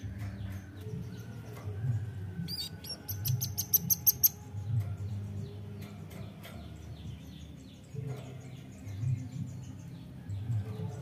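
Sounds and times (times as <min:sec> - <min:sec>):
bird high-pitched chips: 0:02.5 - 0:04.4.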